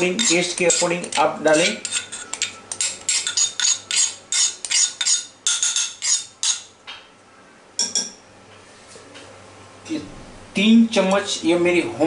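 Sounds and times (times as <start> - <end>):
metal spoon scraping a dish: 0.0 - 6.7.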